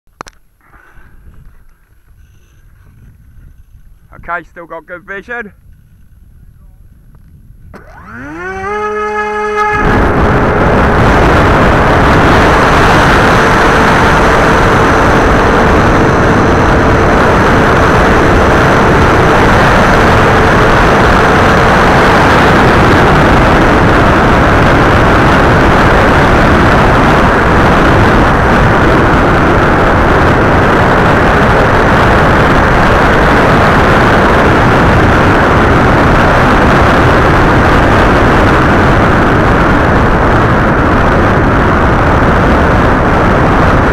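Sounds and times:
propeller and wind rush: 0:00.1 - 0:43.9
faint motor whine: 0:05.7 - 0:32.3.

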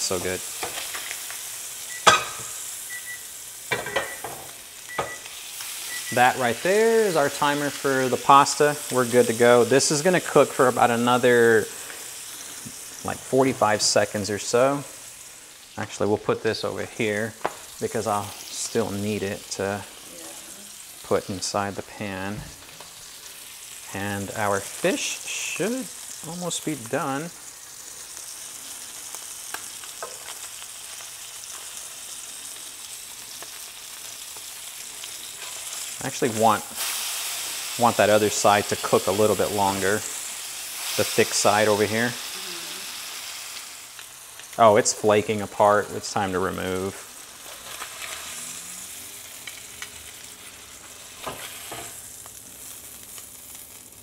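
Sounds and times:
fish sizzling in a skillet: 0:00.0 - 0:54.0.

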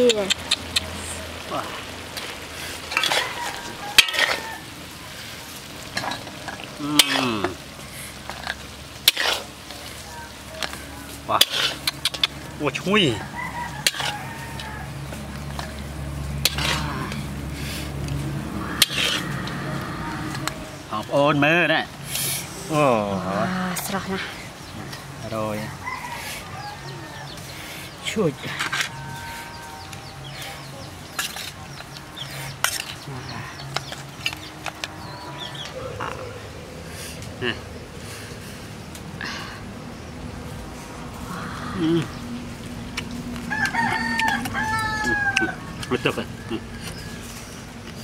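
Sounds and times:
birds chirping: 0:00.0 - 0:48.0
wet scrape and splatter: 0:08.3 - 0:10.0.

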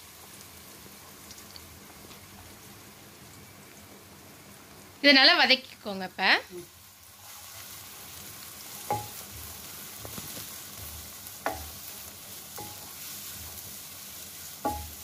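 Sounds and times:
onions sizzling in oil: 0:00.0 - 0:15.0
spatula knocking against pan: 0:08.9 - 0:09.2, 0:11.4 - 0:11.8, 0:12.6 - 0:12.8, 0:14.6 - 0:15.0.

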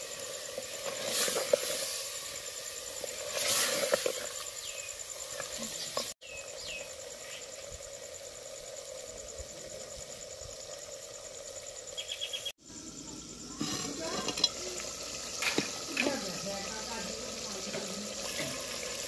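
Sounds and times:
insect chirping: 0:00.0 - 0:19.0
cooking clicks and knocks: 0:13.6 - 0:16.2.

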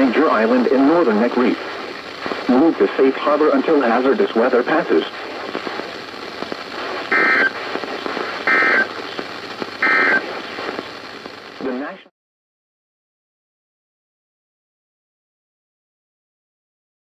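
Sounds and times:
radio data bursts: 0:00.0 - 0:12.0
radio hiss: 0:00.0 - 0:12.1.

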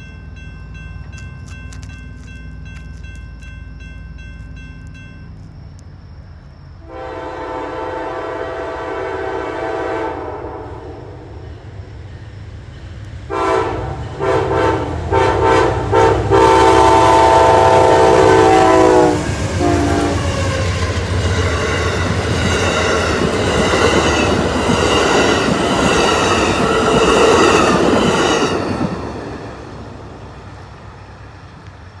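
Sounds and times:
train horn blasts: 0:06.8 - 0:11.2, 0:13.3 - 0:20.5
train wheels clattering on rails: 0:19.2 - 0:31.9.

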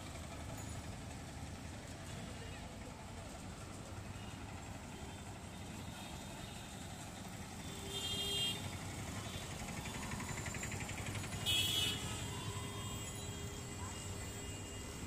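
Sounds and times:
street traffic rumble: 0:00.0 - 0:15.0
vehicle horn honking: 0:07.6 - 0:08.6, 0:11.4 - 0:12.3.

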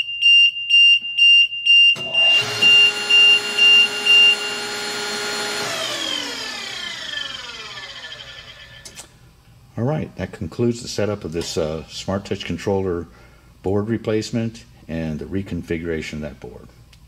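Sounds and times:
warning buzzer beeping: 0:00.0 - 0:05.4
hydraulic pump motor running: 0:02.0 - 0:09.1.

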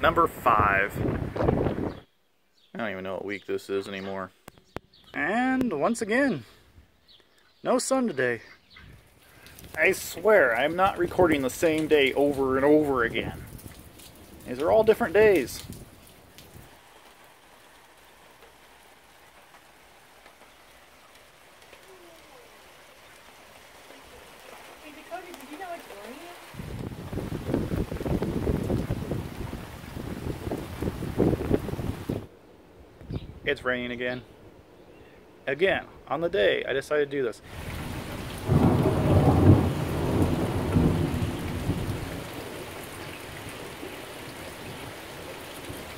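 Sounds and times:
light rain patter: 0:00.0 - 0:45.9
low rumble of thunder: 0:25.1 - 0:32.3, 0:37.5 - 0:45.0.

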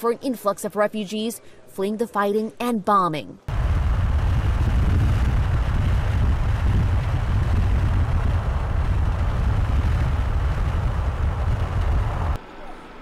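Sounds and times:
vehicle interior rumble: 0:03.5 - 0:12.4.

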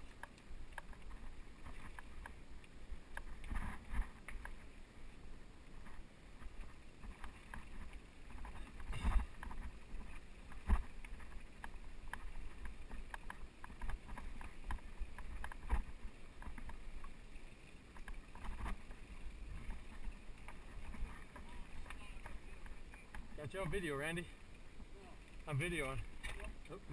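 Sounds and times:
bike rattling and clicking: 0:00.0 - 0:04.8, 0:05.7 - 0:24.7
wheels knocking on rocks: 0:05.8 - 0:24.3.

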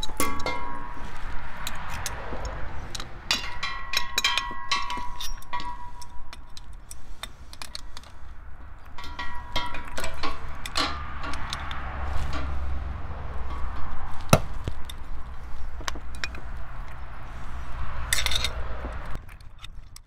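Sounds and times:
road traffic rumble: 0:00.0 - 0:20.0
metal clinks of wrench: 0:02.9 - 0:07.0, 0:08.7 - 0:12.5.

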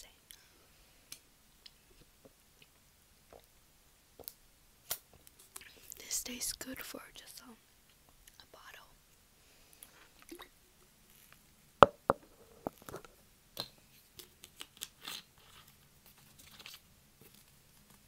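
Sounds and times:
cup knocking on table: 0:11.8 - 0:12.4.

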